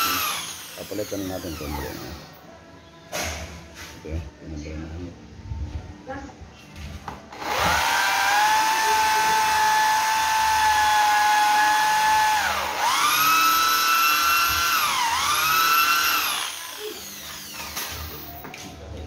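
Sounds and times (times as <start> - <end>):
power tool motor whining: 0.0 - 2.4, 7.3 - 18.4.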